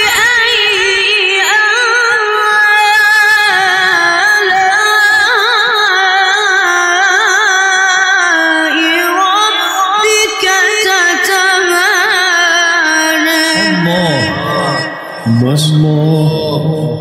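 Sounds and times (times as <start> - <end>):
person reciting in high melismatic voice: 8.2 - 17.0.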